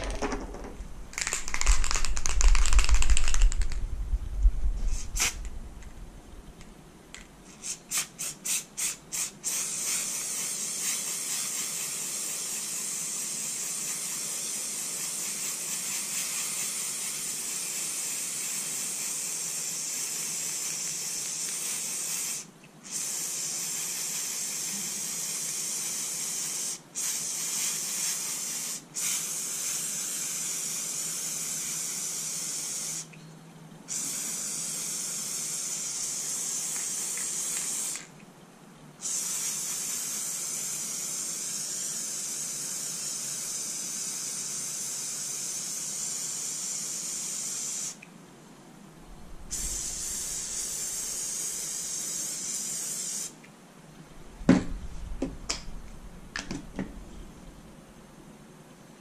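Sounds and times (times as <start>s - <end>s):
pressurised spray hissing: 4.8s - 5.5s, 7.5s - 33.1s, 33.9s - 38.1s, 39.0s - 48.0s, 49.3s - 53.4s.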